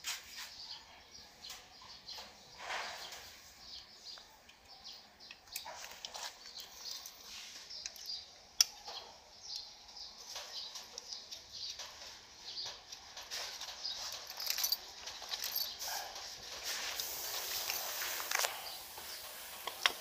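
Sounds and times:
metal parts scraping and clinking: 12.8s - 16.0s, 16.9s - 18.5s.

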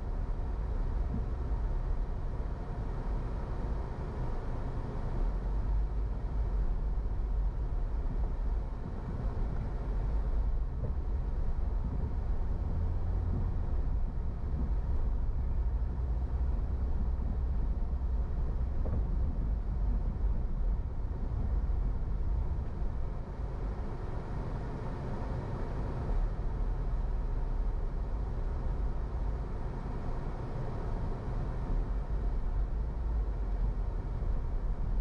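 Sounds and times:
car engine and tyre rumble: 0.0s - 35.0s.

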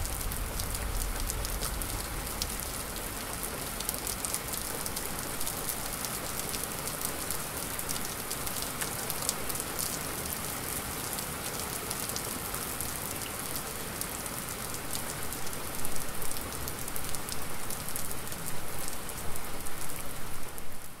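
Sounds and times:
heavy rain hissing: 0.0s - 5.9s.

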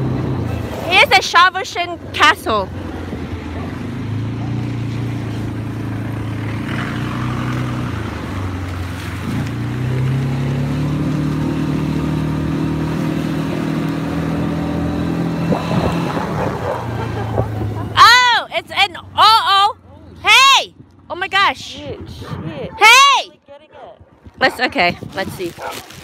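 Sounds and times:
quad bike engine running: 0.0s - 20.2s.

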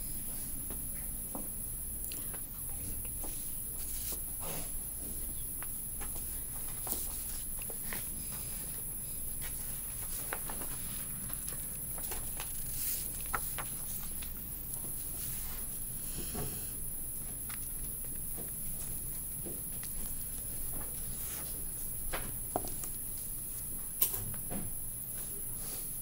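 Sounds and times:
paper rustling: 9.4s - 15.7s.

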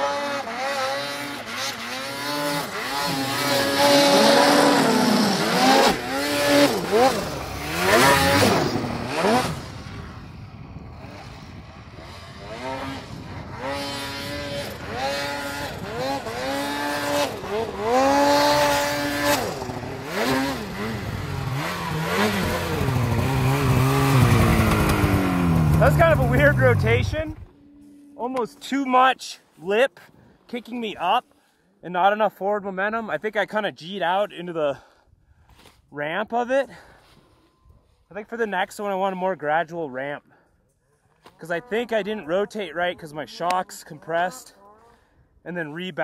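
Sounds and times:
snowmobile engine revving: 0.0s - 27.5s.

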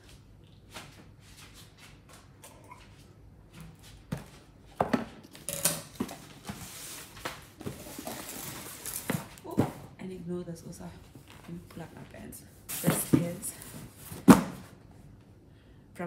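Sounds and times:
cardboard parcel knocking and rustling: 12.7s - 14.8s.

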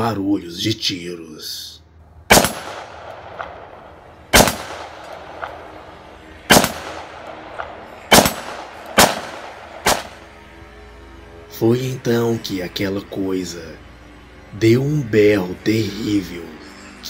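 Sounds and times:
gunshots echoing: 2.3s - 10.5s.

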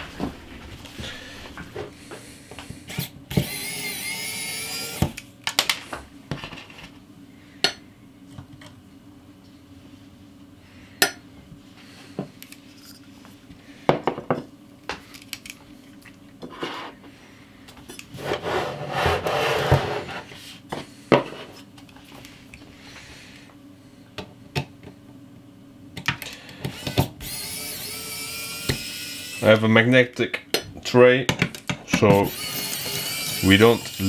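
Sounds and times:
electric screwdriver whirring: 3.0s - 5.3s, 26.6s - 29.5s, 32.2s - 34.0s.

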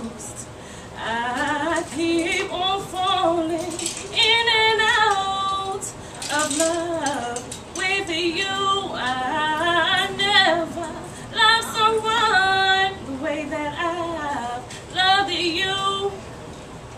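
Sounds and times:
woman singing a cappella: 0.0s - 16.2s
singer breathing: 0.5s - 1.0s, 5.9s - 6.3s, 11.1s - 11.4s.

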